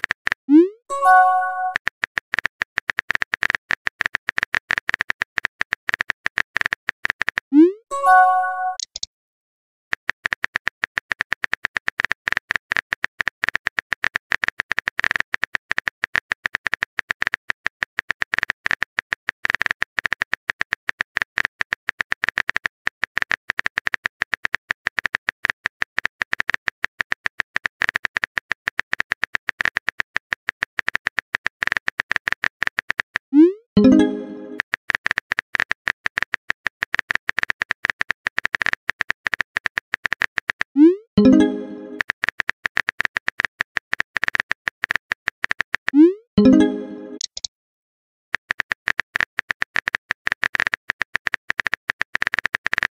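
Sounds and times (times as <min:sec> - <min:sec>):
phone keyboard typing taps: 0:08.6 - 0:09.1, 0:33.8 - 0:47.5.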